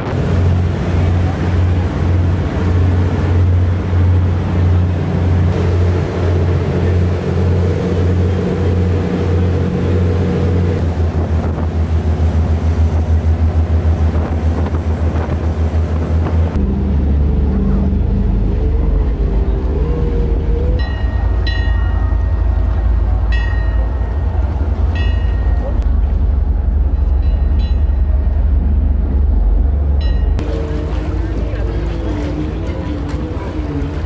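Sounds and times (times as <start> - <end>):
wind on microphone: 0.0 - 21.4
boat engine throbbing: 0.0 - 34.0
water rushing past hull: 0.0 - 34.0.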